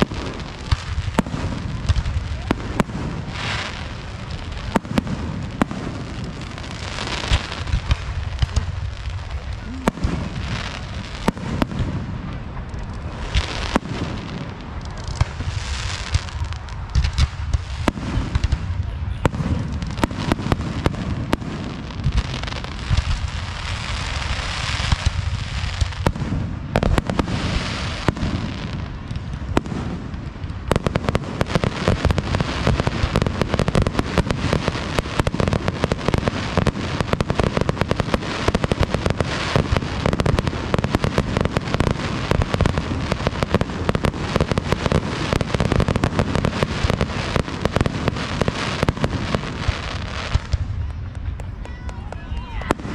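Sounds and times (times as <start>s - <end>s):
fireworks bursting and crackling: 0.0s - 52.9s.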